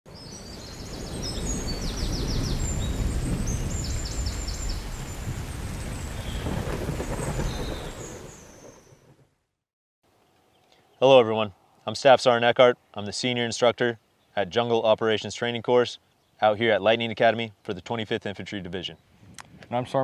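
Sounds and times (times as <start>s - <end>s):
high chirping calls: 0.1s - 8.9s.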